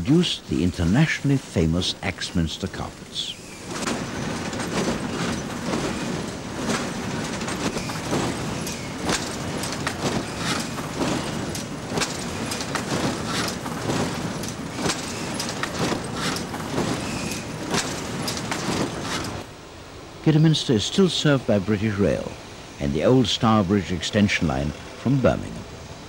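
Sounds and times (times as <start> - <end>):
machinery clattering: 2.8 - 19.5.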